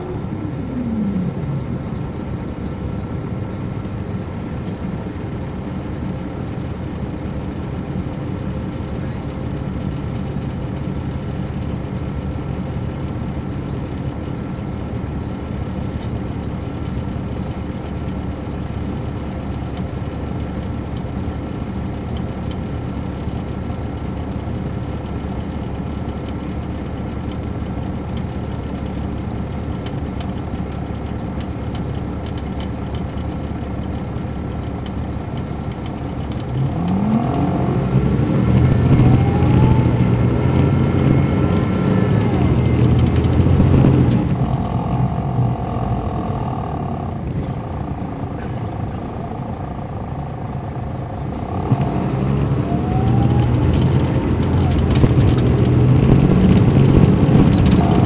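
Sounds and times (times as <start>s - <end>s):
coach diesel engine droning: 0.0s - 58.0s
faint clicks and rattles: 15.7s - 37.0s, 52.8s - 58.0s.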